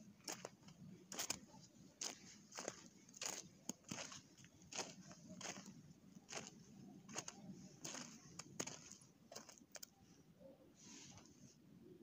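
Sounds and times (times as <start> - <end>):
faint rustling and crackling: 0.2 - 10.2.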